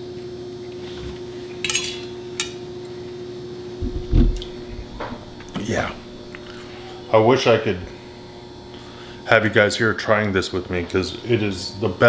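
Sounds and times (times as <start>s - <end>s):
steady hum: 0.7s - 12.0s
fork clinking on metal plate: 1.6s - 2.5s
low thump: 3.8s - 5.3s.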